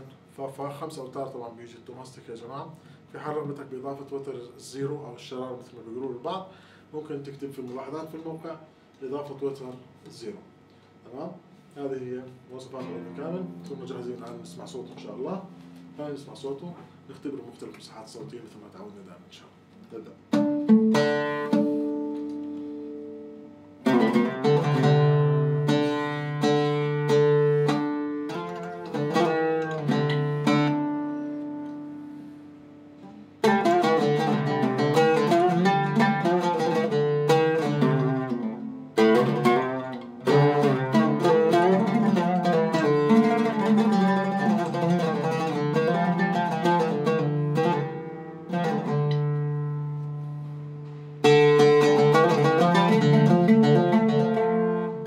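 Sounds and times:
oud plucked notes: 12.6 - 17.7, 20.1 - 55.0.

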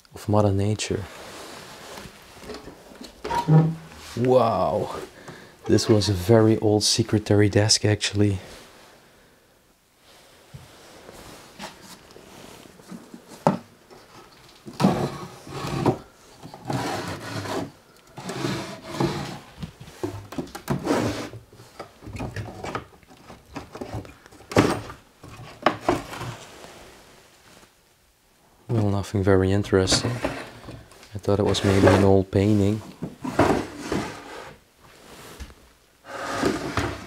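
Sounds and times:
wooden drawers scraping: 1.3 - 6.4, 12.9 - 26.6, 29.8 - 32.3, 32.9 - 34.6, 35.4 - 37.0.

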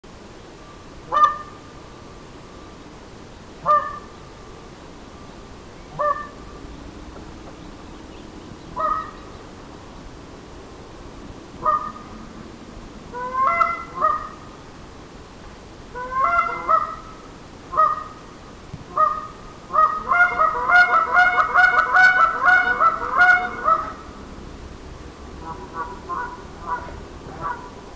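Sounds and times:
goose call honks: 1.1 - 1.6, 3.6 - 4.1, 5.9 - 6.4, 8.8 - 9.2, 11.6 - 12.1, 13.1 - 14.4, 16.0 - 18.2, 18.9 - 24.1, 25.4 - 27.8.

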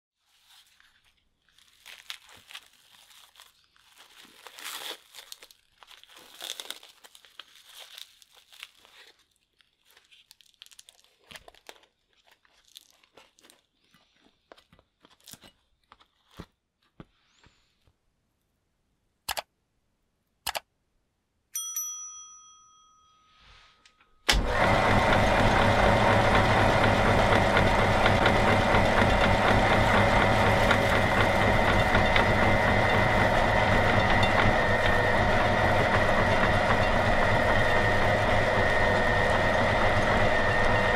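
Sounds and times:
candy tray crinkling: 0.3 - 16.9
sharp clicks: 19.2 - 19.5, 20.4 - 20.7.

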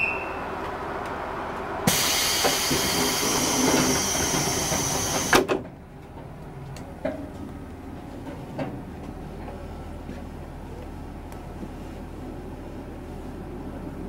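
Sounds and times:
pneumatic door hiss: 1.9 - 5.5.

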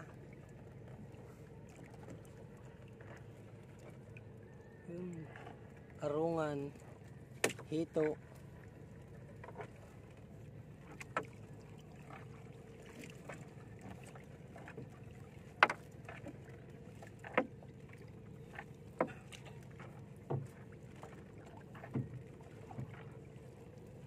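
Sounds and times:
net knocking boat hull: 7.4 - 7.7, 15.5 - 16.4, 19.0 - 23.0.

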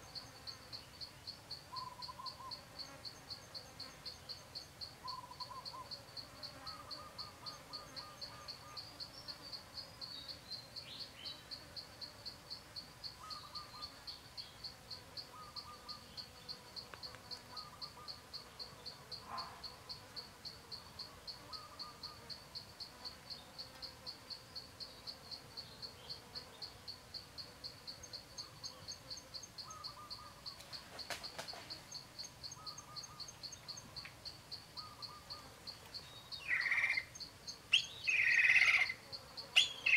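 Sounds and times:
cricket chirping: 0.0 - 39.9.

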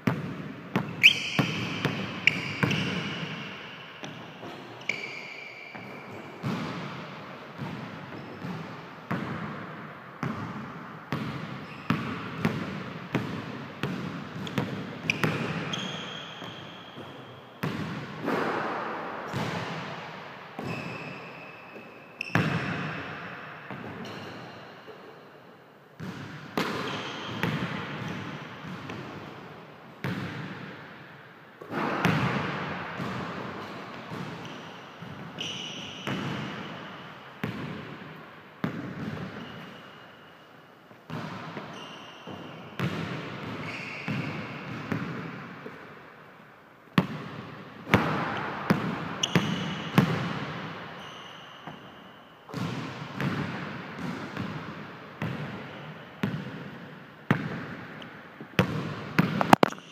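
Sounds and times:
basketball dribbling on gym floor: 0.0 - 3.3, 58.6 - 59.8
sneakers squeaking on floor: 0.0 - 9.4, 11.1 - 12.6, 13.8 - 20.0, 20.6 - 25.0, 26.0 - 29.3, 31.7 - 40.5, 41.1 - 45.8, 47.9 - 57.7.

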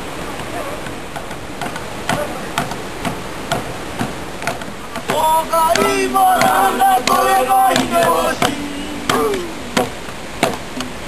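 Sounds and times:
creek water rushing: 0.0 - 11.0
sharp struck beats: 0.4 - 10.8
men singing a chant: 5.0 - 9.9.

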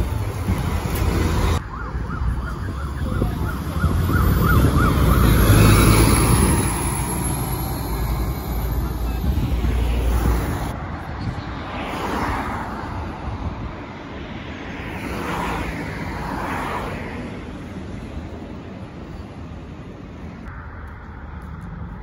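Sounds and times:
bus engine rumble: 0.0 - 12.1
siren yelping: 1.6 - 8.4.

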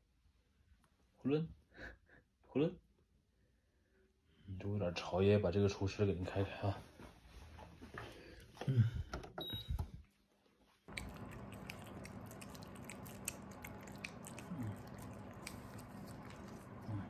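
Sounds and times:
dehumidifier button beep: 9.4 - 10.0
cats licking treat: 10.9 - 17.0
low steady hum: 10.9 - 17.0.

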